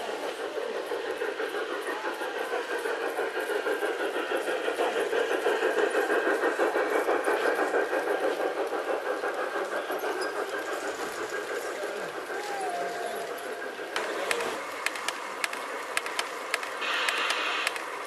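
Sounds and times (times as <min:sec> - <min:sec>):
model train motor whirr: 0:00.0 - 0:18.0
wheels clicking over rail joints: 0:06.2 - 0:18.0.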